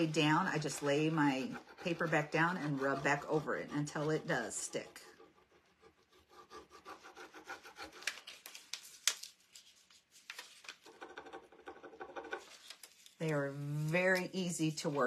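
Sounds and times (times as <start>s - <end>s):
burnishing tool rubbing transfer: 0.0s - 8.0s.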